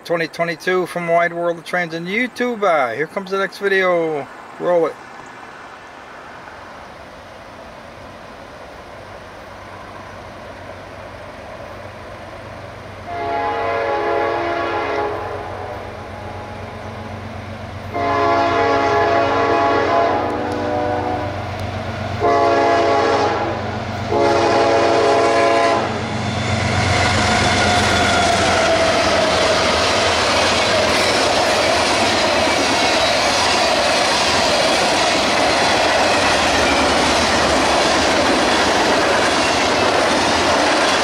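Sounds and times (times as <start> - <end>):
rail noise: 0.0 - 41.0
locomotive air horn: 13.0 - 16.8, 17.9 - 21.4, 22.2 - 28.6.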